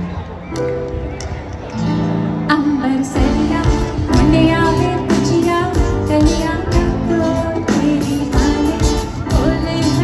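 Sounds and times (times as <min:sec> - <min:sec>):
person singing pop song: 0:02.5 - 0:10.0.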